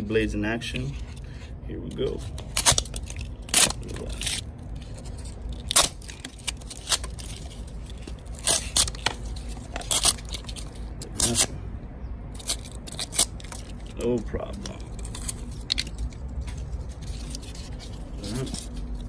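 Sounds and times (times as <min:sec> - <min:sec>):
knife cutting cardboard: 0:01.9 - 0:11.5.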